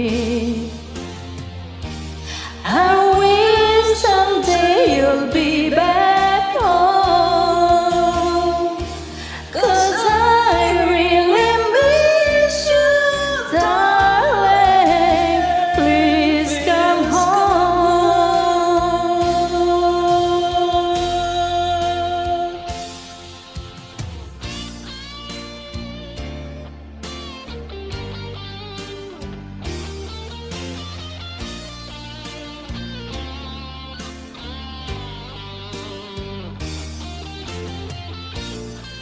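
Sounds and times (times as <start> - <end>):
woman singing wordless vocal run: 0.0 - 0.8, 2.6 - 22.9
karaoke backing track: 0.0 - 39.0.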